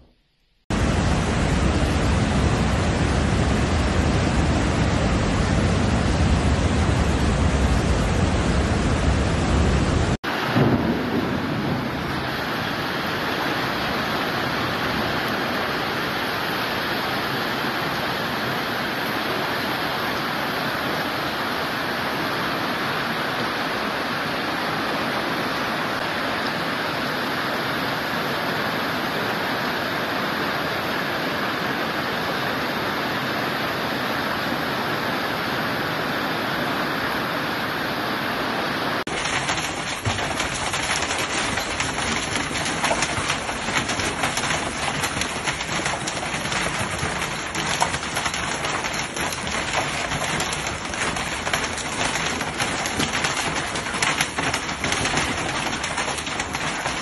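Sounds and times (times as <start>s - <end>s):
floodwater rushing over weir: 0.7s - 57.0s
hail and rain falling: 8.8s - 29.7s, 39.0s - 57.0s.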